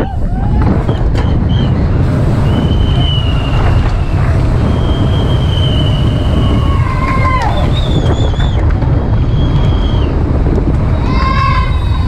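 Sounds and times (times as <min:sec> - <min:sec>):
tyres rumbling on asphalt: 0:00.0 - 0:12.0
wind buffeting camera: 0:00.0 - 0:12.0
high thin squeal: 0:11.0 - 0:12.0.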